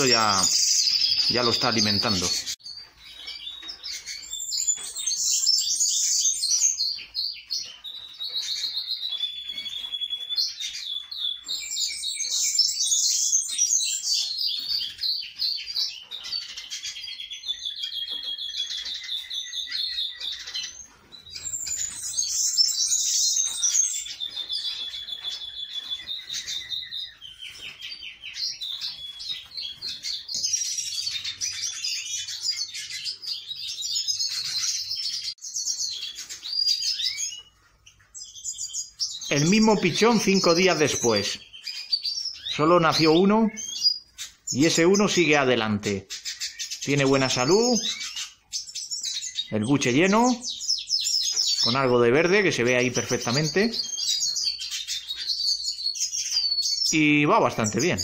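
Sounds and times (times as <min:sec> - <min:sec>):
songbird twittering with trills: 0:00.0 - 0:58.0.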